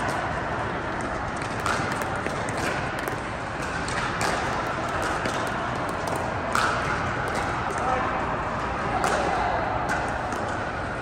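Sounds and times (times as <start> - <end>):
balls bouncing on hard court: 0.0 - 10.8
paddles striking plastic balls: 0.9 - 7.8.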